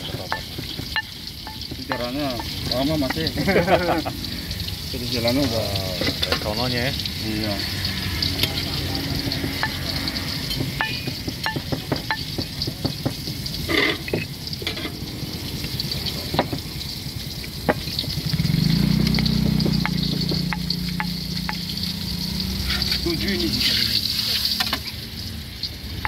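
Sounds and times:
pestle grinding on ceramic plate: 0.0s - 4.0s, 7.6s - 14.8s, 18.9s - 24.0s
pestle clicking against plate: 19.0s - 21.7s.

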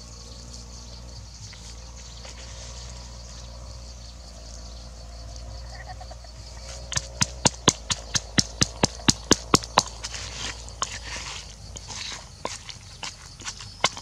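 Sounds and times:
pestle pounding in wooden mortar: 6.7s - 14.0s.

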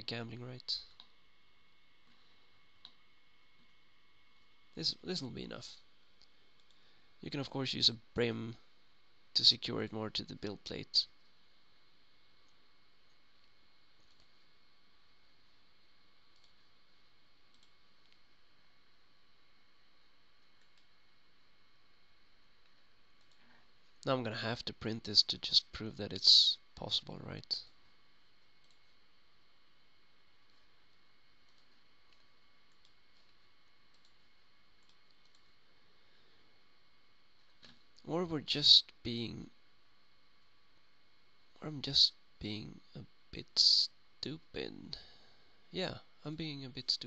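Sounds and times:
faint room hiss: 0.0s - 47.0s
computer mouse clicks: 12.4s - 14.3s, 16.3s - 16.7s, 17.5s - 18.2s, 31.5s - 35.5s.

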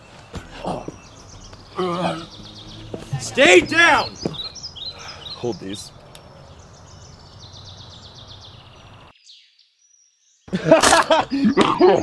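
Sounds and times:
bird trilling: 0.0s - 9.5s.

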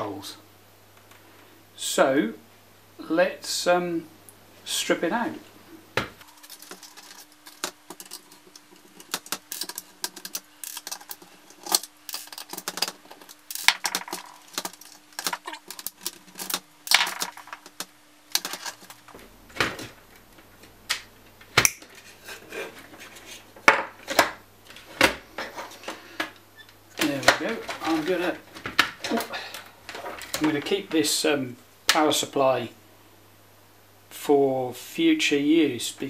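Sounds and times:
screwdriver and parts clattering: 6.2s - 19.1s.

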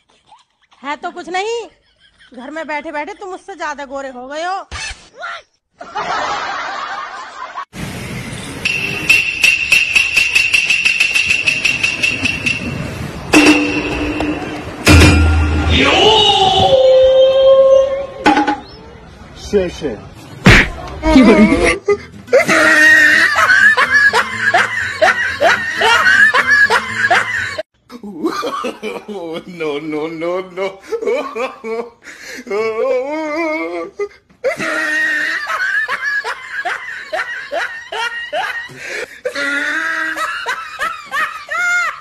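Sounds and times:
woman laughing loudly: 21.0s - 27.6s, 34.5s - 42.0s.

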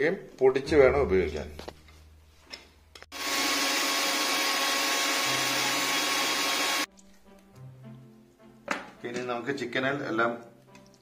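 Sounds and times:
mixer grinder grinding: 3.1s - 6.9s.

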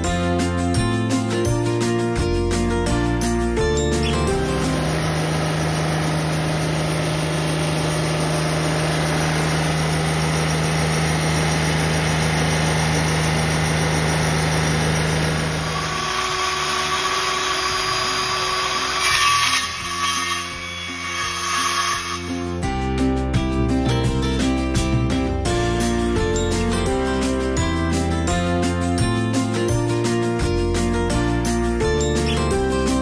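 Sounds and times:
band sawmill cutting log: 3.7s - 22.7s
circular saw cutting: 3.8s - 22.6s.

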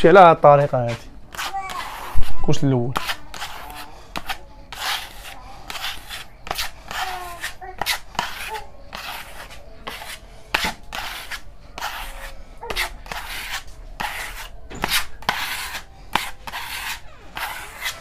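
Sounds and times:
spatula scraping paint on wall: 0.9s - 2.3s, 2.9s - 18.0s.

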